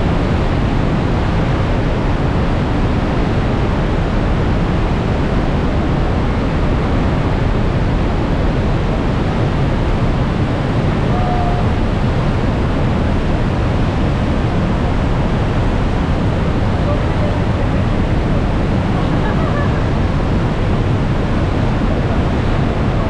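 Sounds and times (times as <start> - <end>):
waterfall rushing: 10.1 - 23.0.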